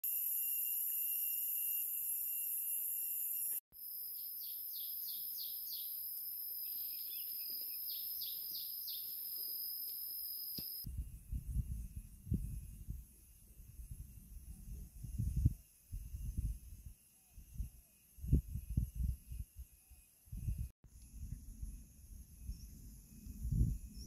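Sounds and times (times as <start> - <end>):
high insect drone: 0.0 - 10.9
bird chirping: 3.4 - 10.9.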